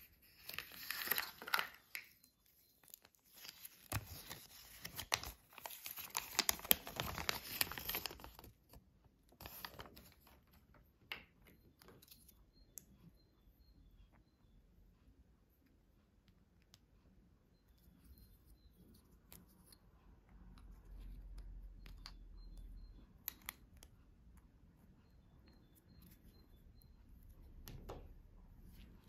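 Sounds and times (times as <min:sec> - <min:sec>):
paper leaflet crinkling: 0:00.0 - 0:02.2, 0:02.8 - 0:08.8, 0:09.4 - 0:10.3.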